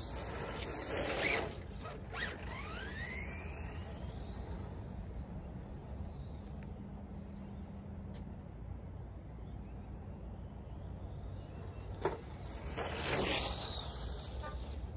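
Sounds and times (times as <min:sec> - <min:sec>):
electric motor whine: 0:00.0 - 0:05.2
tyre and drivetrain rush: 0:00.0 - 0:05.3, 0:10.7 - 0:14.9.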